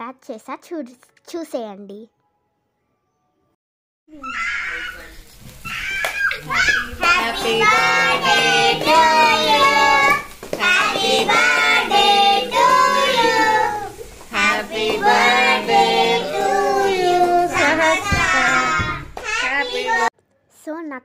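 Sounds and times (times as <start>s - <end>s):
child singing: 6.4s - 20.1s.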